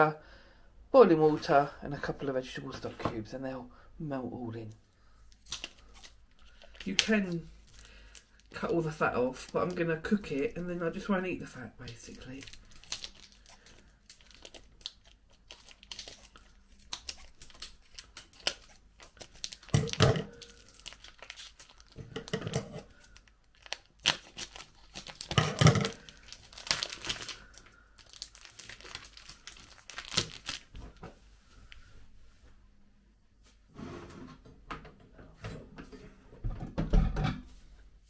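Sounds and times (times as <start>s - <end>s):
food packaging crinkling: 5.2s - 11.0s, 11.8s - 31.0s.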